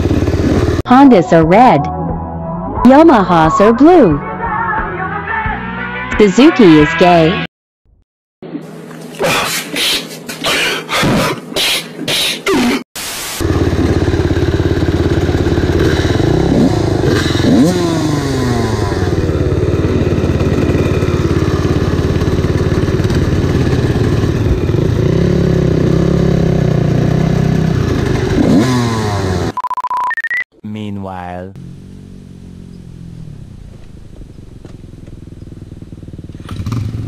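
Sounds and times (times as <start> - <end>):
dirt bike engines idling: 0.0 - 0.9, 13.4 - 29.5, 30.7 - 37.0.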